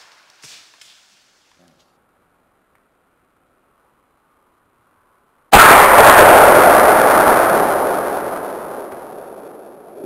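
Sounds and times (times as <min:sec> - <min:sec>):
rifle shot with long boom: 0:05.5 - 0:10.0.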